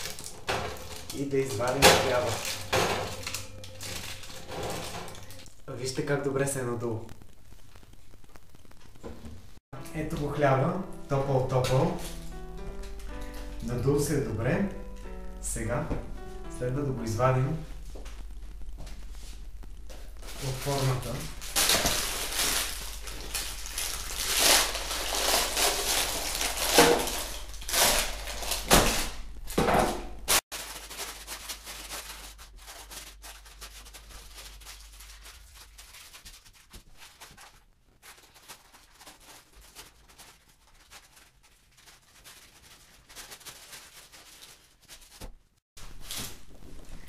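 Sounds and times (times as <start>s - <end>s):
baking paper rustling: 0.0s - 5.5s, 11.1s - 14.6s, 19.0s - 47.0s.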